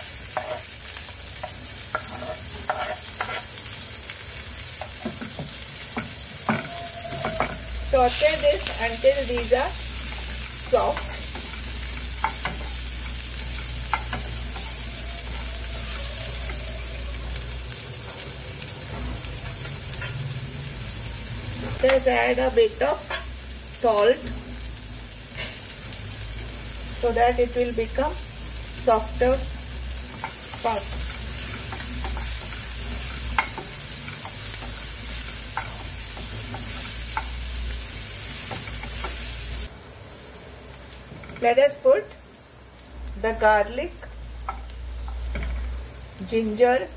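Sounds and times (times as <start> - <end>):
onions sizzling in hot oil: 0.0 - 46.9
spatula tapping and scraping pan: 0.3 - 0.7, 1.4 - 3.5, 10.1 - 12.8.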